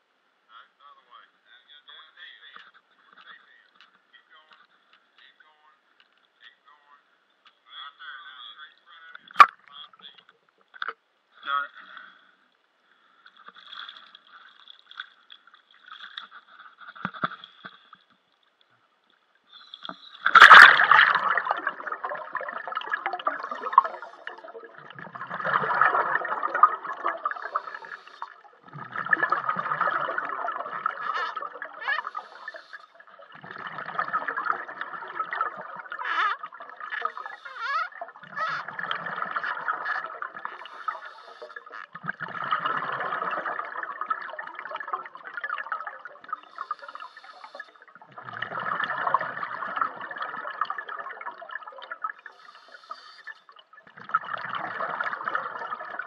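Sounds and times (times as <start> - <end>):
regulator breathing underwater: 19.5 - 24.7, 25.3 - 34.0, 37.0 - 38.6, 40.4 - 41.9, 46.3 - 48.7, 52.2 - 53.6
gurgling rush of bubbles: 19.7 - 56.0.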